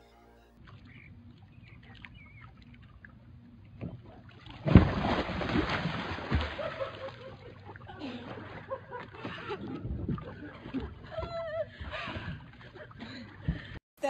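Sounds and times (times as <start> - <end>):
churning splashing water: 0.6 - 13.8
loud splash into water: 4.5 - 7.0.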